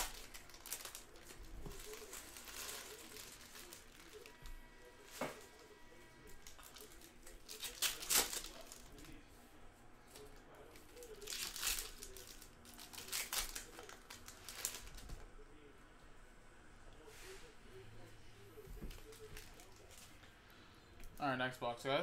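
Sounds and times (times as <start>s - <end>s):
plastic wrappers crinkling and tearing: 0.0s - 5.6s, 6.2s - 9.2s, 10.1s - 15.3s.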